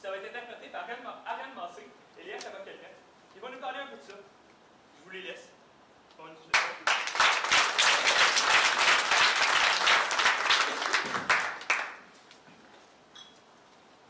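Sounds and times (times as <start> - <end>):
small audience applauding: 6.5 - 12.2.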